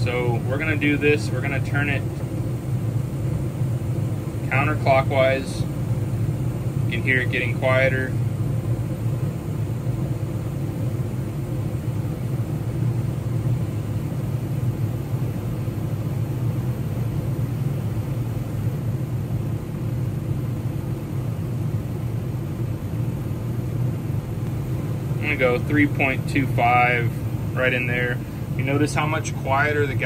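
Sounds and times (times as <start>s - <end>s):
man talking: 0.0s - 2.1s, 4.4s - 5.7s, 6.9s - 8.2s, 25.2s - 30.0s
gas furnace rumbling: 0.0s - 30.0s.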